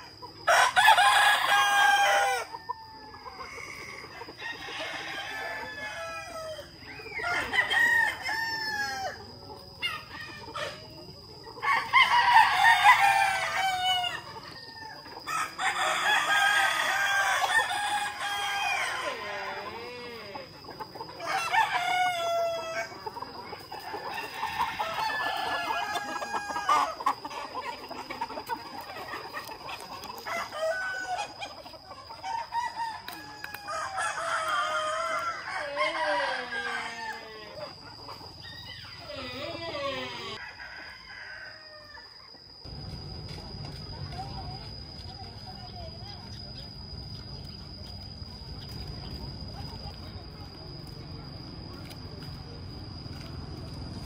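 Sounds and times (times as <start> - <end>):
hens clucking: 0.0 - 40.8
roosters crowing: 0.0 - 42.8.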